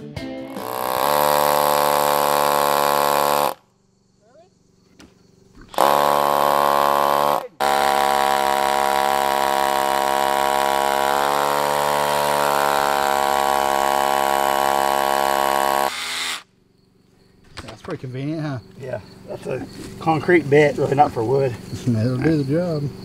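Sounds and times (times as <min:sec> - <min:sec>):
cordless drill boring into wood: 0:00.5 - 0:03.6, 0:05.7 - 0:16.5.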